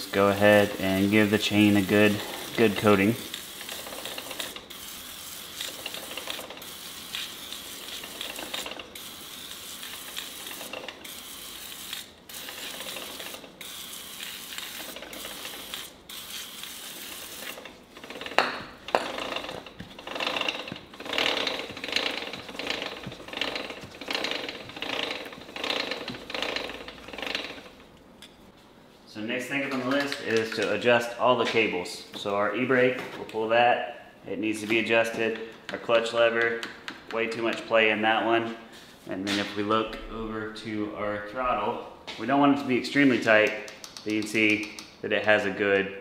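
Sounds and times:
aerosol spray hissing: 0.0s - 8.4s.

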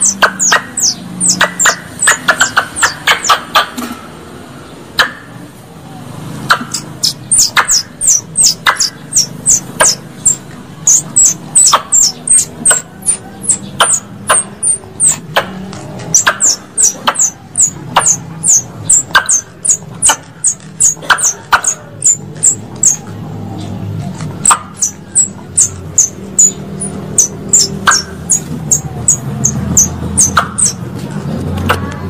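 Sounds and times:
high-pitched squirrel call chips: 0.0s - 3.7s, 6.5s - 23.1s, 24.4s - 30.8s.

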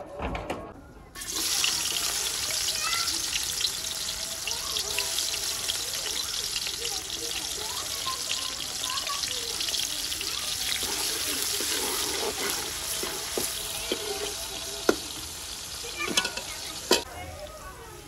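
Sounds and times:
onions sizzling in pan: 1.2s - 18.0s
ladle stirring: 9.7s - 17.1s.

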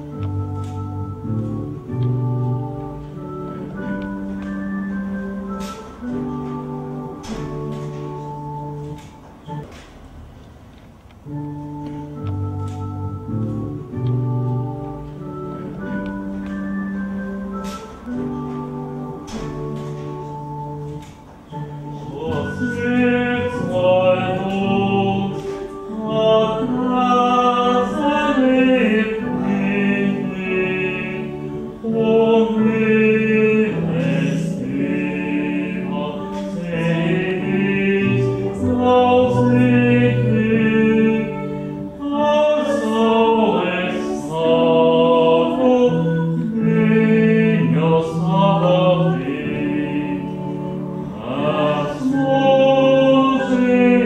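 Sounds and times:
group singing a hymn: 19.2s - 54.0s.

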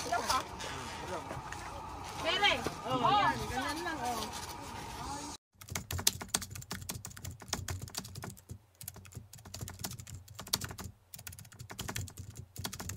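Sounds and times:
keyboard typing: 5.6s - 12.9s.

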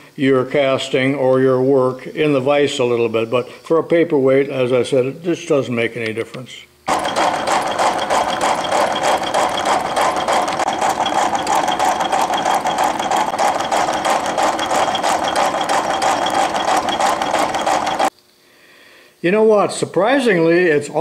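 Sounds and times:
metal shaper clattering: 6.9s - 18.1s.

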